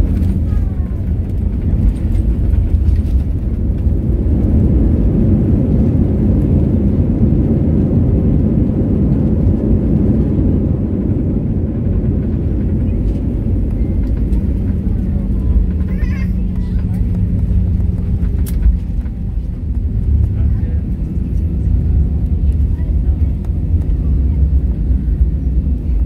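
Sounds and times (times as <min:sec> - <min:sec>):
airliner engines and wheels rumbling: 0:00.0 - 0:26.0
steady cabin hum: 0:00.0 - 0:26.0.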